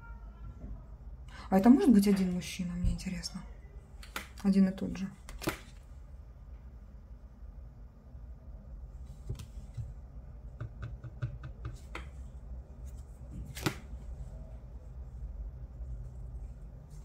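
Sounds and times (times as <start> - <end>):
card snap: 4.0 - 4.4, 5.3 - 5.8, 13.5 - 13.8
cards tapping and clicking: 4.0 - 4.4, 5.3 - 5.8, 10.6 - 12.2, 13.4 - 13.9.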